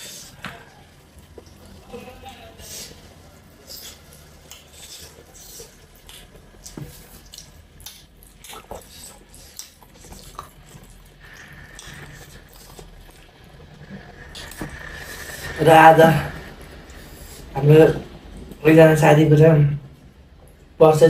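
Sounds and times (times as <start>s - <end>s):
wet chewing: 2.7s - 15.5s.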